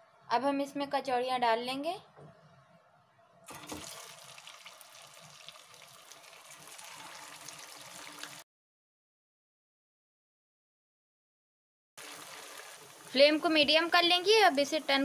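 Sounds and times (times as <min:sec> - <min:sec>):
deep-frying sizzling and crackling: 0:03.5 - 0:08.4, 0:12.0 - 0:15.0.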